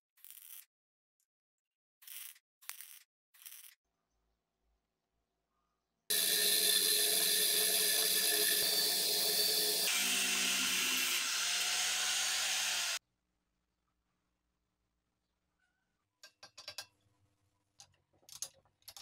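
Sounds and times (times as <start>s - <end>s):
angle grinder grinding metal: 6.1s - 13.0s
lathe running: 6.1s - 13.0s.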